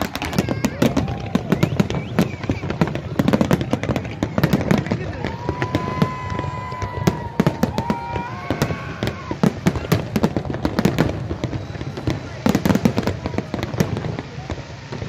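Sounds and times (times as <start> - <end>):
fireworks bursts and bangs: 0.0 - 15.0
high steady whistle: 1.0 - 3.1.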